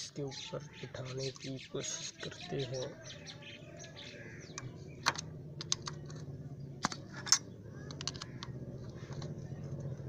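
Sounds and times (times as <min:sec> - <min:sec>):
steady low hum: 0:02.8 - 0:10.0.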